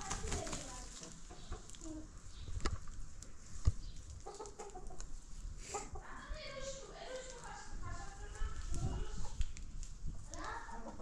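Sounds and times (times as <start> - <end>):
hens clucking: 0.0 - 2.2, 3.9 - 9.4, 10.3 - 11.0.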